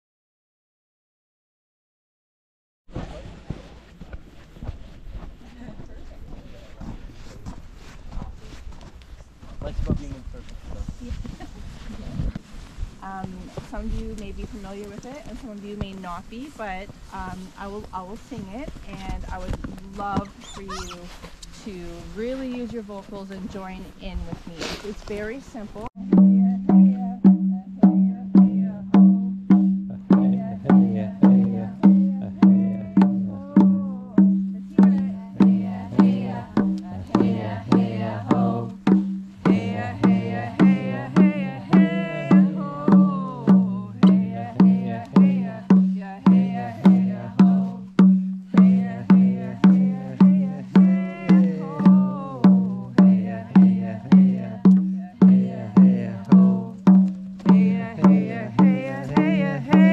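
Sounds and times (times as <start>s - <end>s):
steady drum beat: 13.0s - 24.3s, 24.9s - 59.9s
group chanting: 29.9s - 34.0s, 34.7s - 47.8s, 48.6s - 56.7s, 57.5s - 59.9s.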